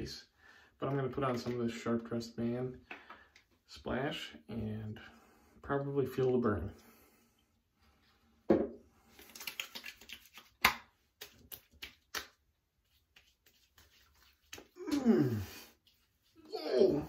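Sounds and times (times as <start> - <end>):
wet hands patting skin: 9.1 - 15.2
person groaning in pain: 14.8 - 15.7, 16.4 - 17.0.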